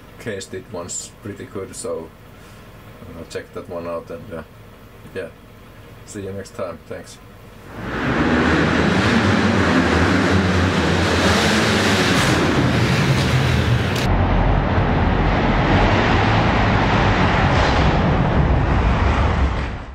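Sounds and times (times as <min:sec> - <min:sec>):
dirt bike engine revving: 0:07.6 - 0:14.1
steady rushing din: 0:07.6 - 0:19.9.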